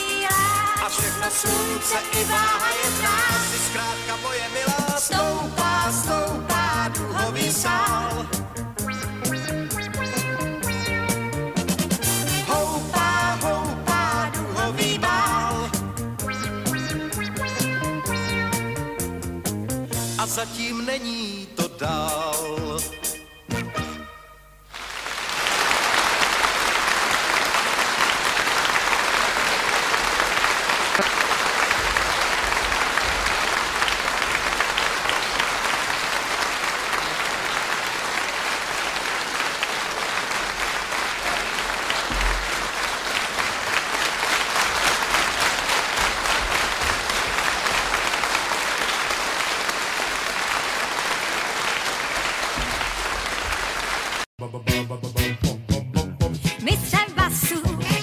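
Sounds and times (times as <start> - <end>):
audience applauding: 24.7 - 54.3.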